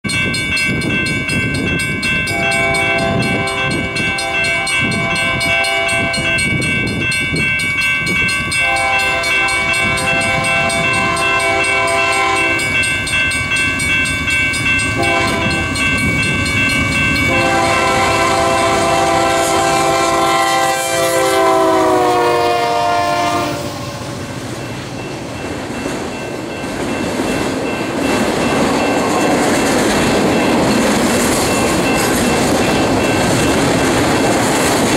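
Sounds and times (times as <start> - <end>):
train wheels on rails: 0.0 - 34.9
locomotive air horn blasts: 2.3 - 6.5, 8.6 - 12.8, 15.0 - 15.8, 17.3 - 24.3.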